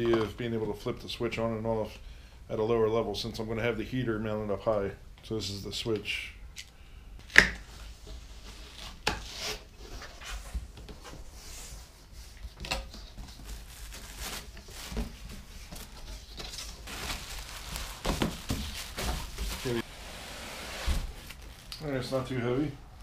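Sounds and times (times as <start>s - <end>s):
cardboard sliding and rubbing: 14.1s - 21.6s
knocks and scrapes: 18.0s - 21.4s.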